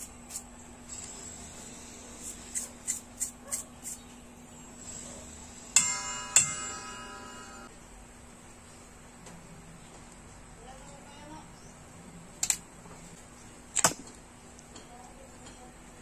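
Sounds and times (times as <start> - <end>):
toothbrush scrubbing metal: 2.2 - 4.0.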